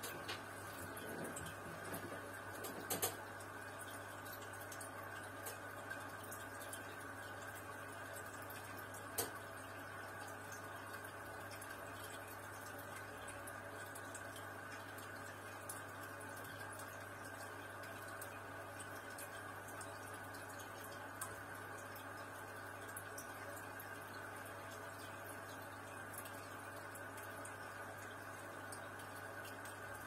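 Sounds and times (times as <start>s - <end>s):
air bubbles in aquarium: 0.0s - 30.0s.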